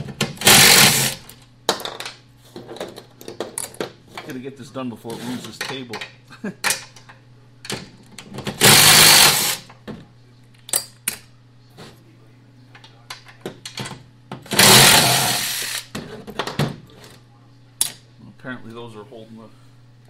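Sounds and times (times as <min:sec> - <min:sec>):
impact driver running: 0:00.3 - 0:01.2, 0:08.5 - 0:09.7, 0:14.5 - 0:15.9.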